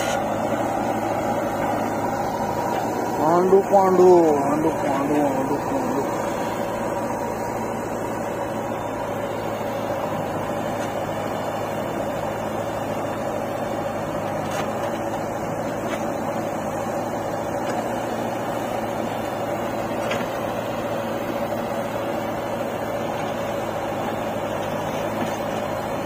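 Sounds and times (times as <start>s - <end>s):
diesel engines idling: 0.0s - 26.0s.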